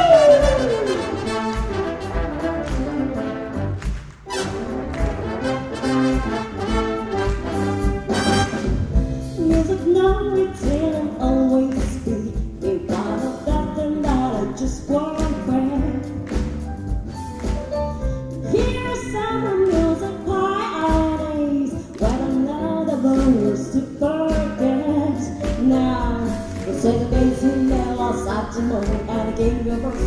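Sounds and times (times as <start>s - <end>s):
jazz big band playing: 0.0s - 30.0s
woman singing: 9.4s - 16.2s, 18.4s - 30.0s.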